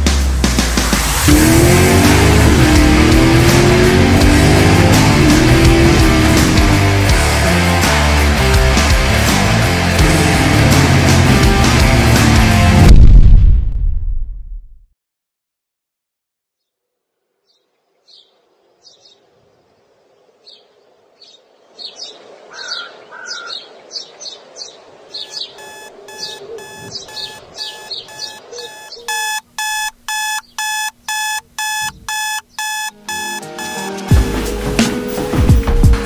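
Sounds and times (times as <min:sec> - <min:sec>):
birds chirping: 0:17.4 - 0:33.9
digital alarm clock beeping: 0:25.3 - 0:34.0.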